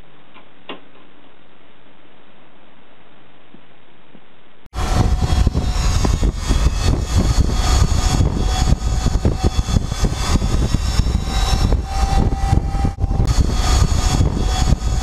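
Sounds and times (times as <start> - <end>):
faint steady whine: 0.0 - 15.0
wind buffeting microphone: 4.8 - 15.0.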